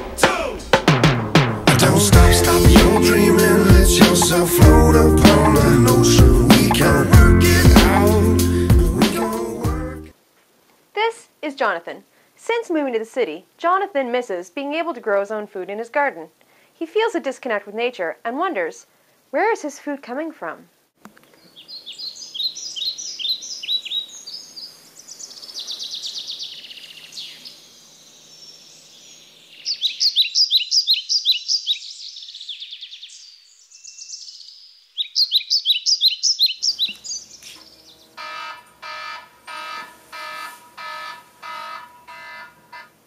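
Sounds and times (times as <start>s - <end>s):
songbirds chirping and trilling: 21.2s - 43.0s.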